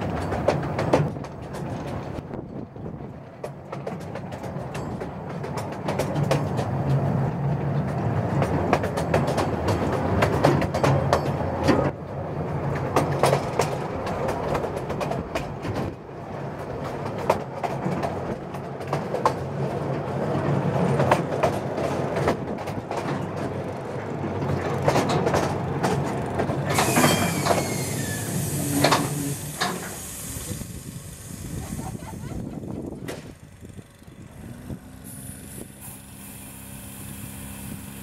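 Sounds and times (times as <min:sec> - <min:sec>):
diesel locomotive drone: 0:00.0 - 0:38.0
train wheels clicking over rail joints: 0:00.0 - 0:38.0
wheel squeal: 0:26.6 - 0:30.7
hiss: 0:26.7 - 0:32.6, 0:35.0 - 0:38.0.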